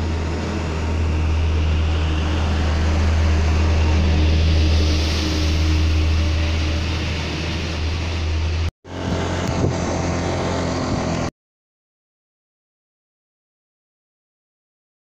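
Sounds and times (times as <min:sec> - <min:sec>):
motorcycle engine: 0:00.0 - 0:11.3
wind buffeting microphone: 0:08.3 - 0:10.2.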